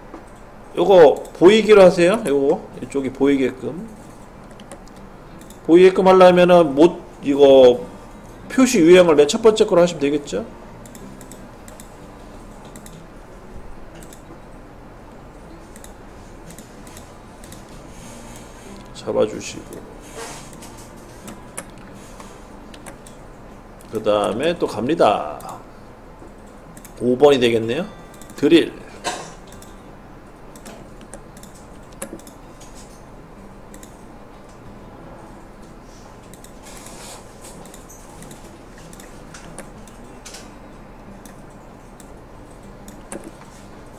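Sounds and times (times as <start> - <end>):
steady background hiss: 0.0 - 43.9
computer mouse clicks: 4.4 - 5.7, 10.8 - 11.9, 12.6 - 13.0, 14.0 - 14.3, 15.7 - 17.7, 21.3 - 23.2, 26.4 - 27.0, 29.5 - 29.8, 30.5 - 32.4, 33.7 - 34.0, 36.3 - 40.5, 41.2 - 43.4.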